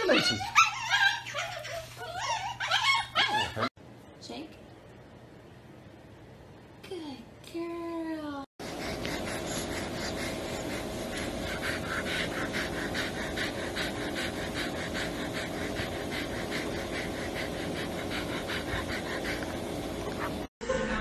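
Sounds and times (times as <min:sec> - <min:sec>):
dog panting rapidly: 0:08.6 - 0:20.5
steady hum: 0:08.6 - 0:20.5.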